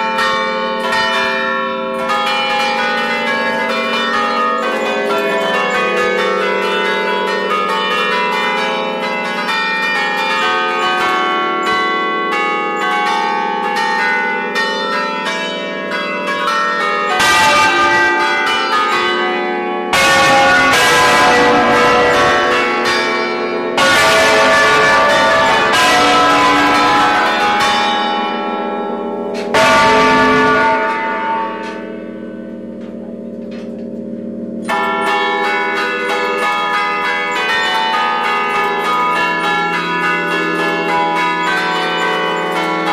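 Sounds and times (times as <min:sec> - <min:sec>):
tuned church bells ringing: 0:00.0 - 0:42.9.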